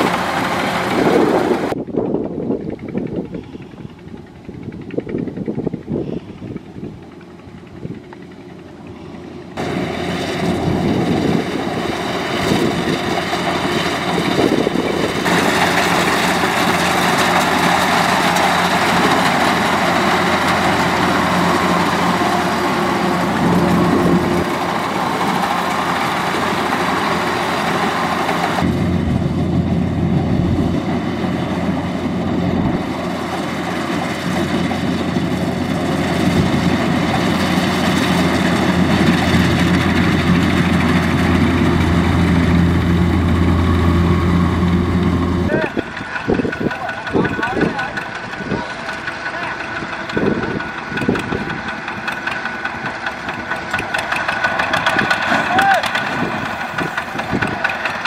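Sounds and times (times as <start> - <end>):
combine harvester running: 0.0 - 58.0
deep low hum: 39.4 - 45.6.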